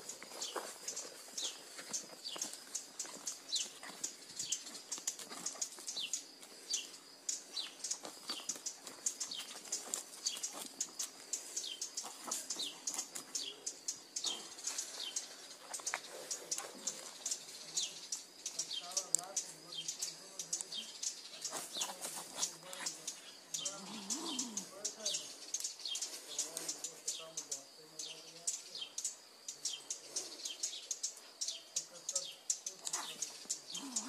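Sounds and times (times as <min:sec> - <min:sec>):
faint scuffs and rustles: 0:00.0 - 0:07.0
songbird chirping: 0:00.0 - 0:34.0.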